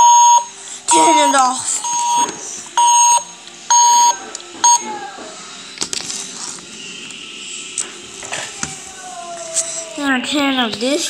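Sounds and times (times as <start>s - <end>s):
toy robot beeps: 0.0s - 4.9s.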